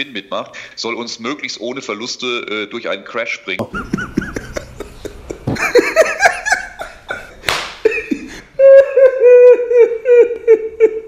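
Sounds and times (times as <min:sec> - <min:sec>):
man laughing heartily: 0:03.6 - 0:11.0.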